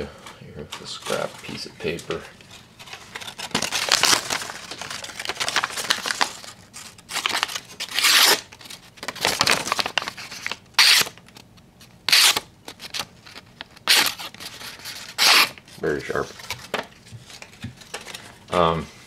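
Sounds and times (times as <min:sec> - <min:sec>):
paper rustling: 0:00.7 - 0:11.5.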